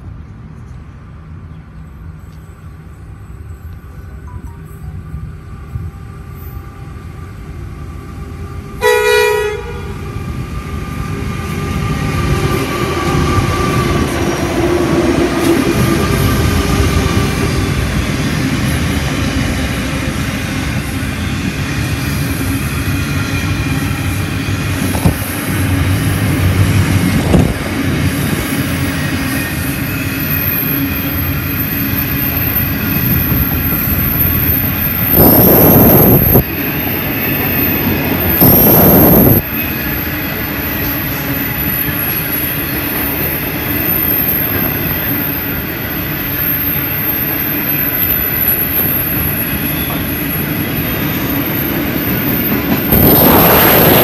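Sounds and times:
freight train rumbling past: 0:00.0 - 0:54.0
train horn blast: 0:08.8 - 0:10.0.

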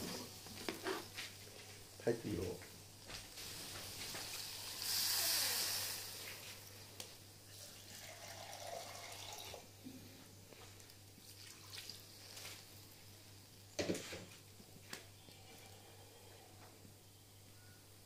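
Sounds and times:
food simmering: 0:02.7 - 0:13.7
water poured into a wok: 0:07.5 - 0:09.7, 0:11.2 - 0:12.4
splashing and dripping: 0:11.2 - 0:12.5.

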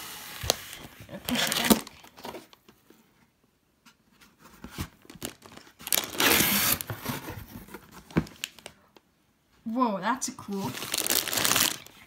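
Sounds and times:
plastic bags crinkling: 0:01.2 - 0:02.6, 0:05.0 - 0:06.9, 0:10.5 - 0:12.0.

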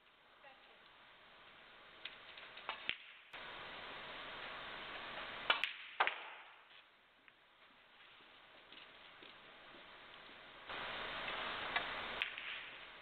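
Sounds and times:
even hiss: 0:09.4 - 0:13.0.

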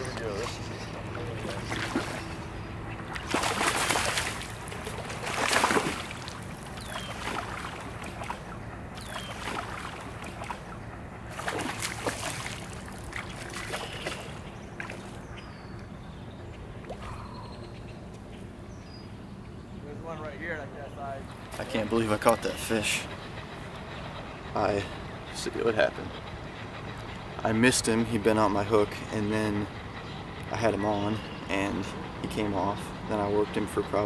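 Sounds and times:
fish thrashing and splashing: 0:00.0 - 0:15.1
faint bird chirps: 0:06.8 - 0:07.4, 0:09.0 - 0:09.6, 0:13.7 - 0:19.9.

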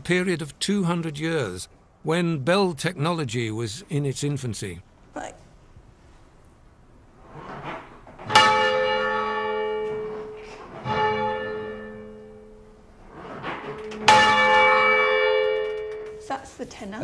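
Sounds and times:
church bell ringing: 0:08.3 - 0:13.0, 0:13.6 - 0:16.4.

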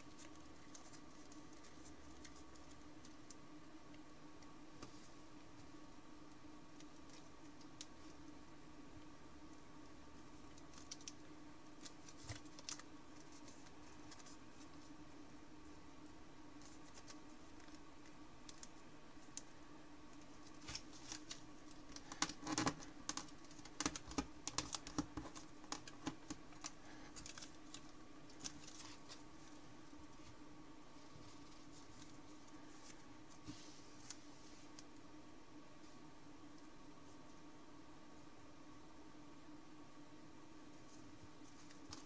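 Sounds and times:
paper crinkling: 0:00.0 - 0:03.4, 0:10.4 - 0:15.0, 0:16.6 - 0:19.4, 0:20.2 - 0:30.3
faint steady hum: 0:00.0 - 0:42.0.

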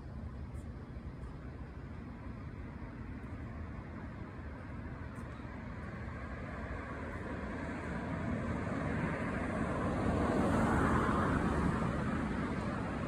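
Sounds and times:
vehicle passing: 0:06.7 - 0:13.0.

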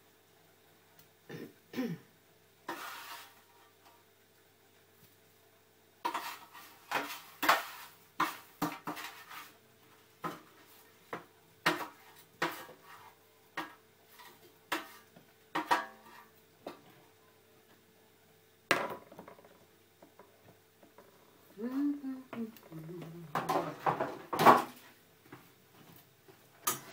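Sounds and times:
utensil scraping a baking tray: 0:02.6 - 0:03.9, 0:06.0 - 0:11.0, 0:11.6 - 0:16.3.

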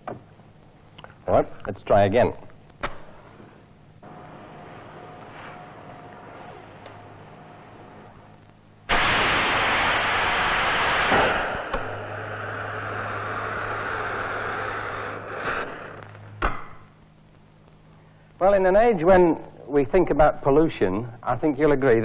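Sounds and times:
low mains hum: 0:00.0 - 0:22.0
firework rocket motor hissing: 0:02.9 - 0:16.9.

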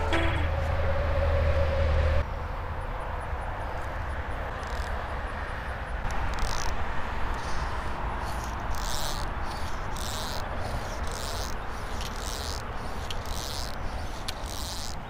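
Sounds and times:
outdoor background rumble: 0:00.0 - 0:15.0
fly reel rasping: 0:06.1 - 0:15.0.

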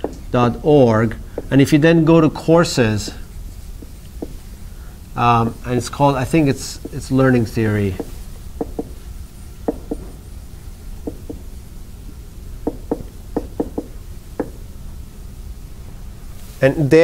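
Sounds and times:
low room hum: 0:00.0 - 0:17.0
chalk tapping on board: 0:01.3 - 0:01.6, 0:03.5 - 0:04.5, 0:05.7 - 0:10.2, 0:11.0 - 0:11.5, 0:12.6 - 0:14.6.

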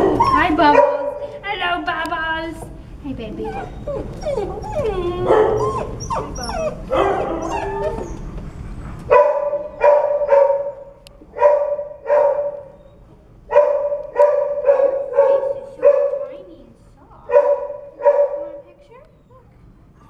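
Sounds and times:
puppies whining and yelping: 0:00.0 - 0:00.7, 0:03.4 - 0:09.1
dog barking: 0:00.0 - 0:01.4, 0:05.2 - 0:07.8, 0:09.1 - 0:12.8, 0:13.5 - 0:16.4, 0:17.3 - 0:18.6.

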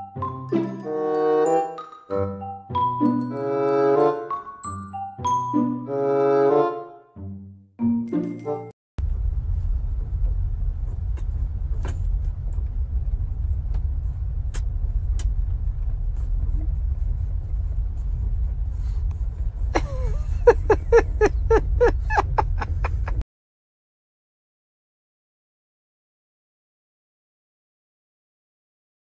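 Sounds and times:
steady low rumble: 0:09.0 - 0:23.2.

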